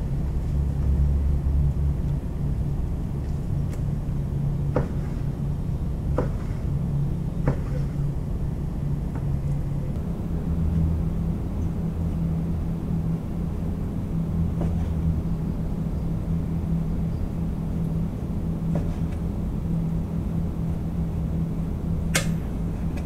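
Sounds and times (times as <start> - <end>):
low mechanical hum: 0.0 - 23.0.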